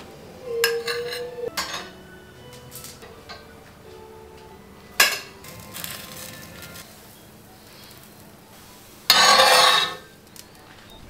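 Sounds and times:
faint background music: 0.0s - 11.0s
metal spatula scraping pan: 9.1s - 10.1s.

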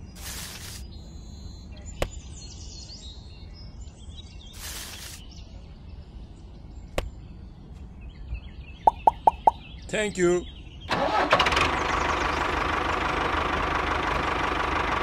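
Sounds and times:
faint high chirps: 8.9s - 9.7s.

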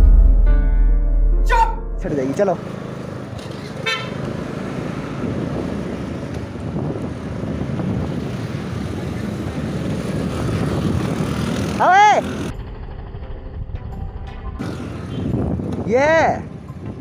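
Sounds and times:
scooter engine running: 2.6s - 15.7s
wind noise on microphone: 4.9s - 11.8s, 12.7s - 17.0s.

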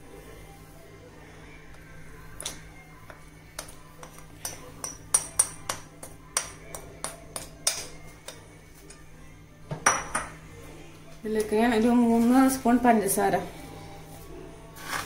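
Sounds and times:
metal spoon tapping a bowl: 3.1s - 8.4s.

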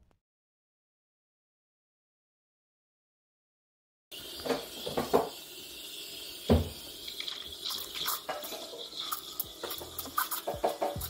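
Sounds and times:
liquid pouring: 4.1s - 11.0s.

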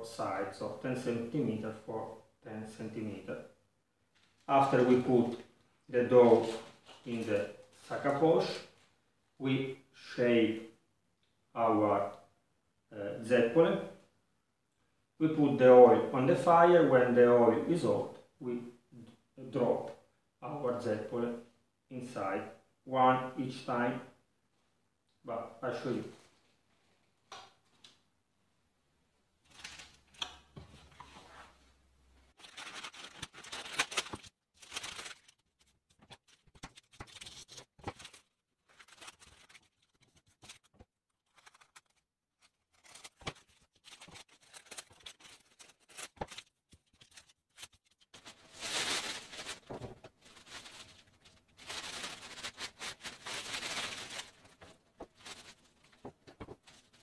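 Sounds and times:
paper rustling and crinkling: 6.3s - 7.8s, 29.4s - 31.6s, 32.3s - 57.0s
scissors snipping paper: 32.4s - 48.2s.

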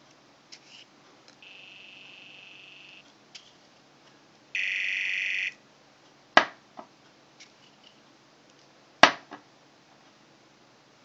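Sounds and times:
high electronic buzzing tone: 1.4s - 3.0s, 4.6s - 5.6s.

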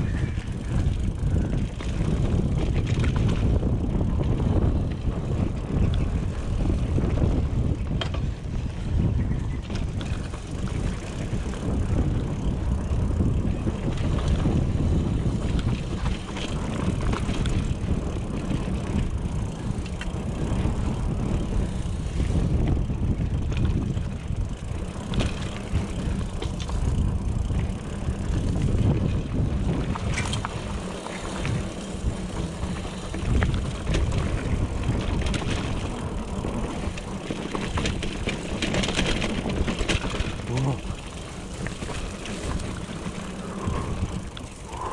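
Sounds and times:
bike rattling over bumps: 0.0s - 44.9s
wind buffeting microphone: 0.0s - 44.9s
tyres rumbling over ground: 9.8s - 44.9s.

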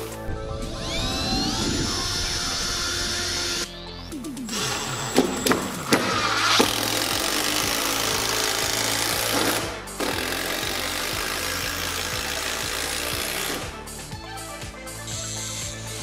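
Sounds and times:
background music: 0.0s - 16.0s
cordless drill boring through wood: 0.6s - 3.8s, 4.5s - 13.8s.

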